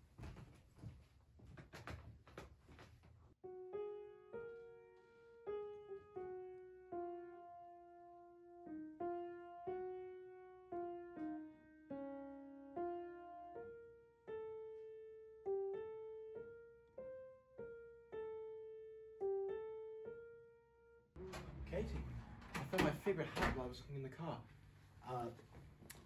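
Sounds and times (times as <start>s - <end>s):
slow solo piano melody: 3.4s - 20.9s.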